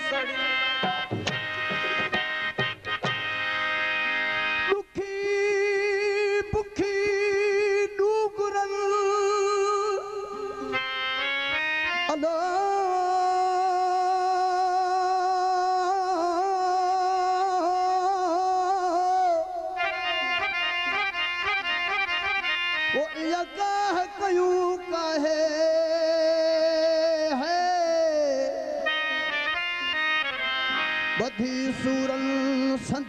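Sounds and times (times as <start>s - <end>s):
man singing with vibrato: 0.0s - 2.6s, 3.4s - 33.0s
harmonium: 0.0s - 33.0s.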